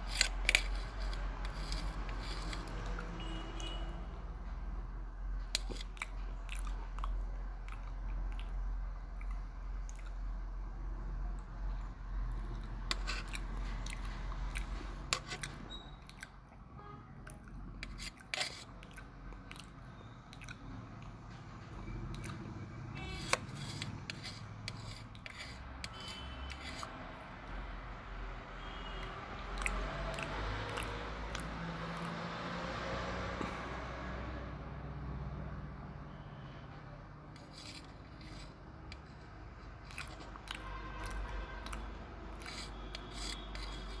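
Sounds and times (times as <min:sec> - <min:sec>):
chewing: 0:00.0 - 0:03.3, 0:05.4 - 0:10.4, 0:11.3 - 0:27.0, 0:29.0 - 0:32.7, 0:37.4 - 0:44.0
spoon scraping metal plate: 0:00.0 - 0:03.8, 0:12.9 - 0:13.5, 0:15.0 - 0:16.0, 0:17.8 - 0:18.7, 0:23.0 - 0:27.0, 0:37.4 - 0:39.1, 0:39.9 - 0:44.0.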